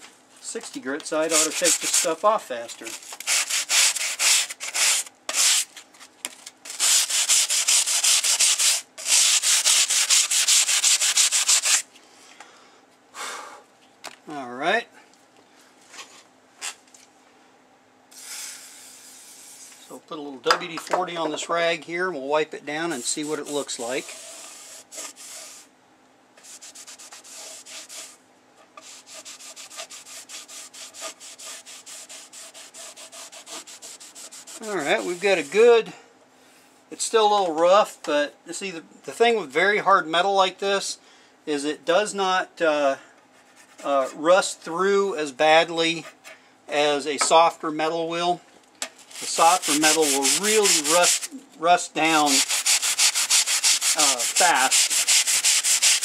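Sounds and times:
rag scraping along saw blade: 1.2 - 2.2, 3.2 - 5.6, 6.7 - 11.8, 22.9 - 25.6, 26.4 - 28.2, 28.8 - 35.7, 49.1 - 51.3, 52.0 - 56.0
sanding block scrubbing rusty steel: 1.2 - 2.2, 3.3 - 5.7, 6.7 - 11.8, 22.9 - 25.6, 26.4 - 28.2, 28.8 - 35.6, 49.1 - 51.3, 52.0 - 56.0.

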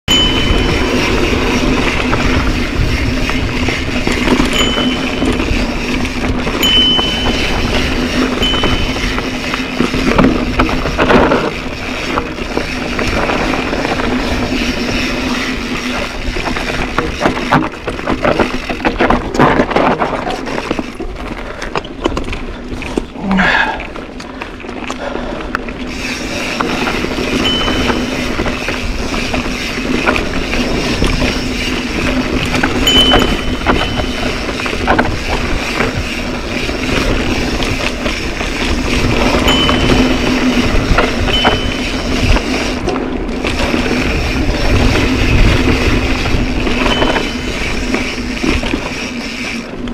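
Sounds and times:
thin high whine: 0.1 - 3.0, 4.0 - 10.3, 26.0 - 29.5, 30.4 - 35.0, 39.1 - 42.9, 46.6 - 49.6
wind noise on microphone: 0.1 - 23.6, 24.2 - 49.9
bike rattling: 0.1 - 49.9
bike tyres crunching over stones: 0.1 - 49.9.

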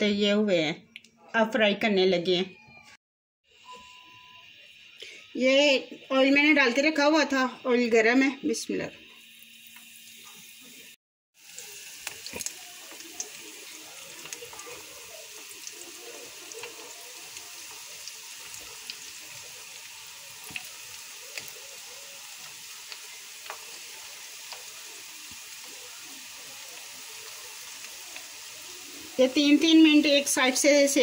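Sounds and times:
food deep-frying in hot oil: 4.4 - 31.0
oil popping and crackling: 9.3 - 31.0.

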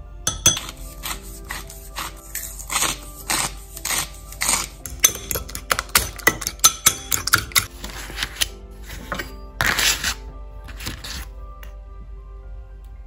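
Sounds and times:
fork clinking against bowl: 0.3 - 1.7, 4.5 - 7.7.

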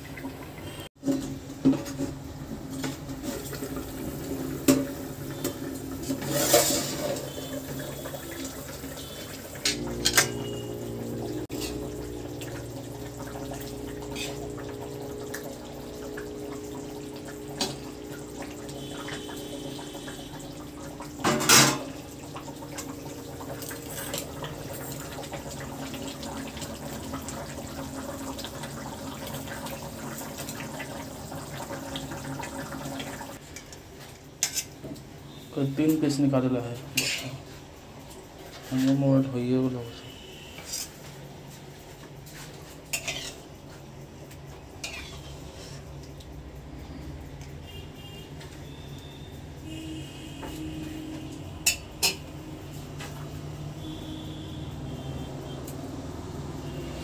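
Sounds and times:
curry simmering and bubbling: 0.0 - 35.9, 40.1 - 47.5
metal clanks against pan: 21.2 - 21.9, 51.6 - 52.2.

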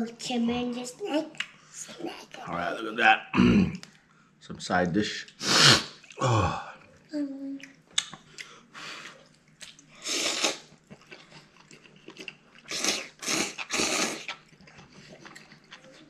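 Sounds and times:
person slurping noodles: 5.4 - 6.7, 10.0 - 10.7, 12.6 - 14.4
soft chewing: 6.8 - 16.0
small mouth clicks: 7.5 - 8.5.

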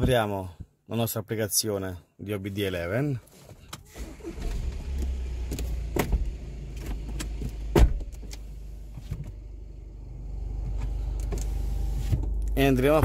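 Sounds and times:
low steady rumble: 4.4 - 13.0.

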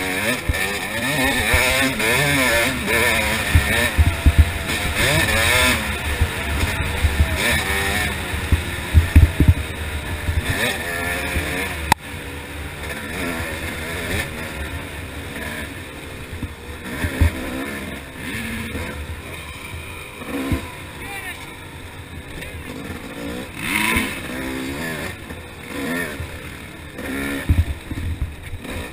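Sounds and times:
dirt bike engine revving: 0.0 - 28.9
thumps on microphone: 8.5 - 9.6.

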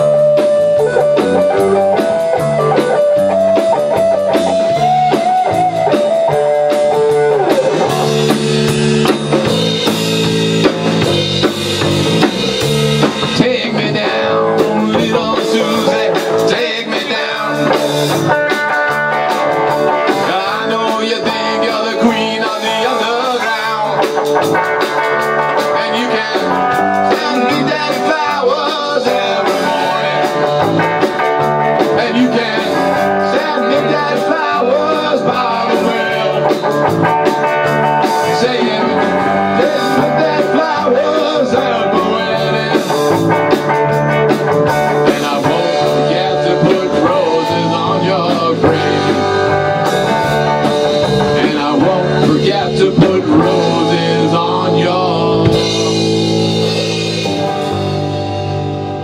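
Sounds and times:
bass guitar: 0.0 - 59.0
drum kit: 0.0 - 59.0
electric guitar: 0.0 - 59.0.

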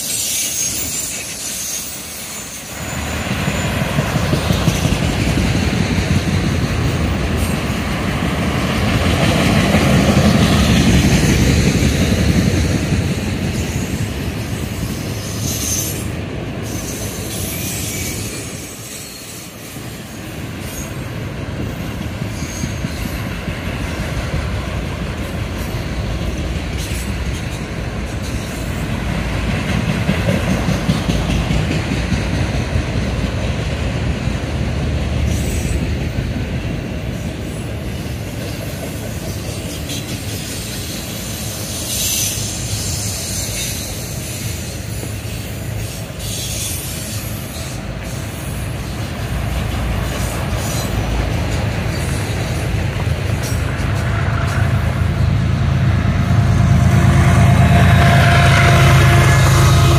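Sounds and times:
high wheel squeals: 0.0 - 4.0, 14.7 - 19.7, 39.3 - 49.0
train wheels rumbling on rail: 0.0 - 59.9.

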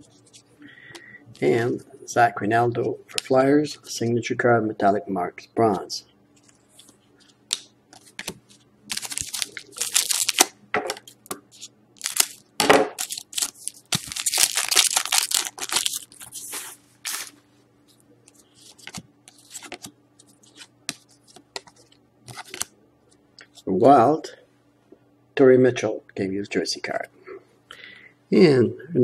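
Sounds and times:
foil wrapper tearing and crinkling: 8.9 - 10.5, 12.0 - 12.4, 13.0 - 17.4.

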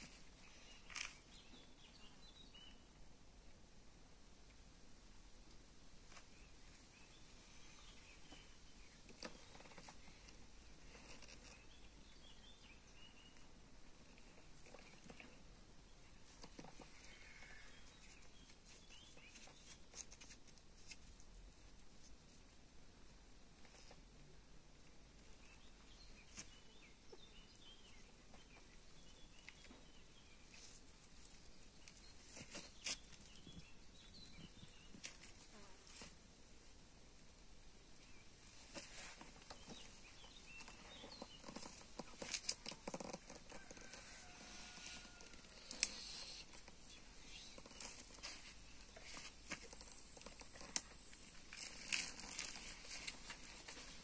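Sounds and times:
distant bird chirps: 39.4 - 54.0.

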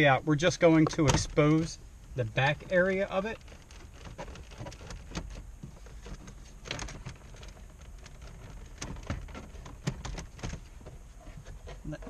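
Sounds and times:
plastic trim creaking and clicking: 2.6 - 12.0.

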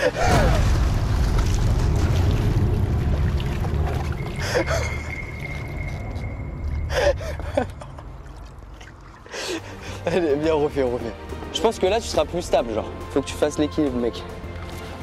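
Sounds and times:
water splashing and churning: 0.0 - 10.1, 14.2 - 15.0.

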